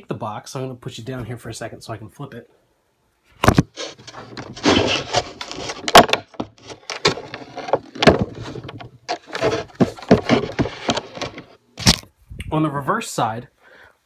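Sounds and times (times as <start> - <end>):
wooden box knocks and scrapes: 3.4 - 12.0.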